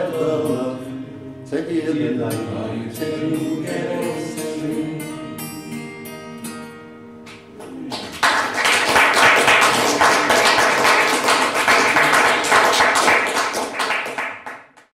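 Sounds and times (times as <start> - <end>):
audience applauding: 7.7 - 14.9.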